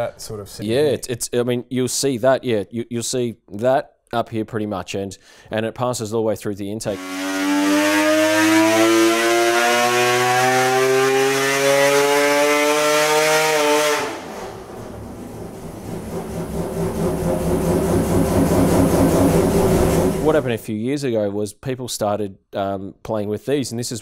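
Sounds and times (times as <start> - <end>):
rotary race engine revving: 6.9 - 20.5
engine running lumpy and pulsing: 14.2 - 20.4.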